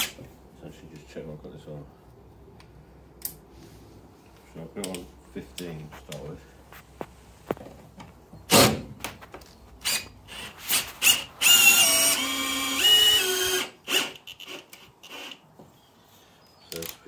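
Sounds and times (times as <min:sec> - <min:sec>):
cordless drill whining: 0:09.8 - 0:15.4.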